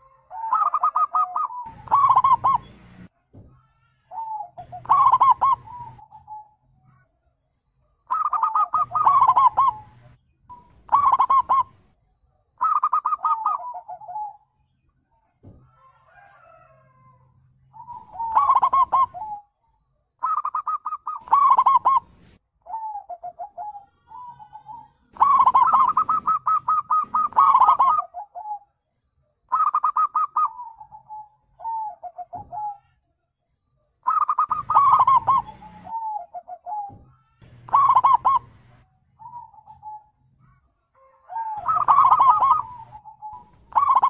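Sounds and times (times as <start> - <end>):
doves cooing: 0.0 - 6.6, 8.0 - 11.9, 12.6 - 14.4, 17.7 - 19.5, 20.2 - 28.6, 29.5 - 33.0, 34.0 - 44.0.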